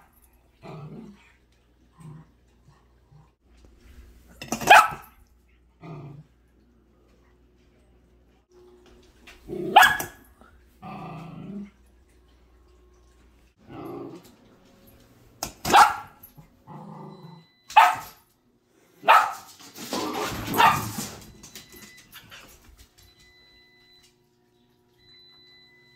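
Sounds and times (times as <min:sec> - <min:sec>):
puppy growling: 0:00.6 - 0:03.4, 0:05.7 - 0:06.4, 0:10.8 - 0:11.8, 0:13.6 - 0:14.5, 0:16.5 - 0:17.5
puppy barking: 0:04.6 - 0:05.1, 0:09.6 - 0:10.2, 0:15.6 - 0:16.2, 0:17.7 - 0:18.2, 0:19.0 - 0:19.5, 0:20.4 - 0:21.0.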